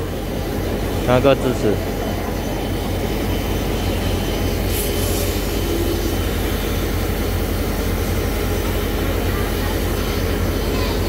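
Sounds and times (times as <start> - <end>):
steam locomotive rumble and hiss: 0.0 - 11.0
sharp hiss of steam: 2.7 - 10.8.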